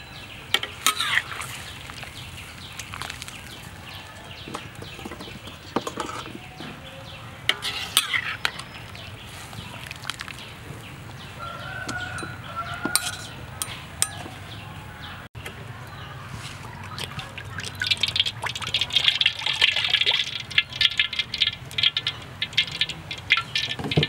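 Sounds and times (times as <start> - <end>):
chicken feet clattering into colander: 0.6 - 14.6, 15.4 - 24.0
rooster crowing: 11.3 - 15.3.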